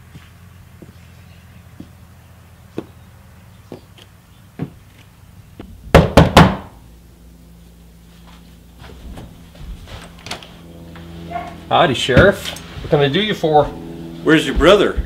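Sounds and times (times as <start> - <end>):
slow footsteps: 0.0 - 3.0, 8.0 - 15.0
knocks on a door: 5.9 - 6.6.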